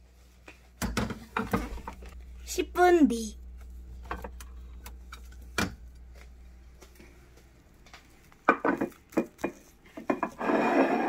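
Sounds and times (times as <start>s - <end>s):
clattering and rustling: 8.5s - 11.0s.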